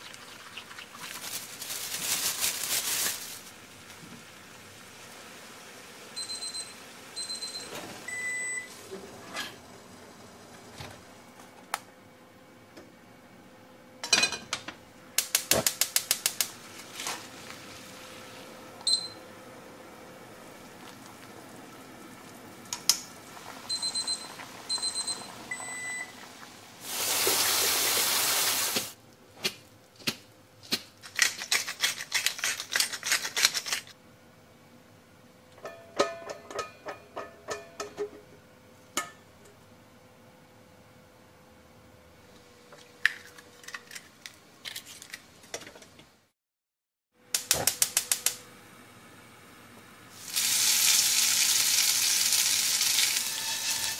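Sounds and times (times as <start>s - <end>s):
water pouring: 0.0s - 1.6s, 26.8s - 28.9s.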